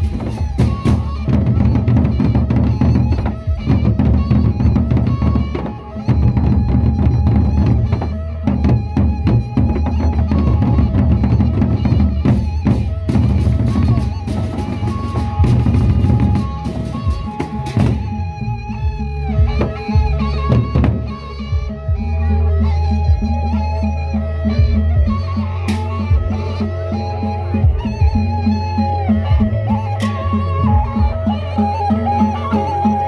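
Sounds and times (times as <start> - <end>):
barrel drums beaten with sticks: 0.0 - 18.2, 19.4 - 21.2.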